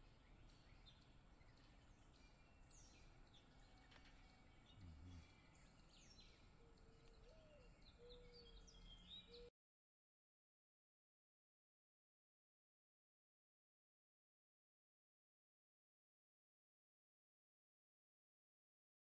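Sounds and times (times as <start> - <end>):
small birds chirping: 0.0 - 9.5
soft low dove coo: 4.6 - 5.5.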